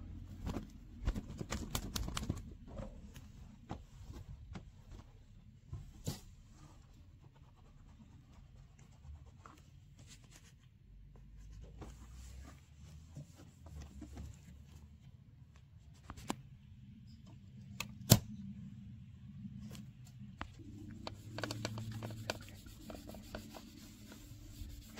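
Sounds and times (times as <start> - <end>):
cloth rubbing on car body: 21.1 - 24.9.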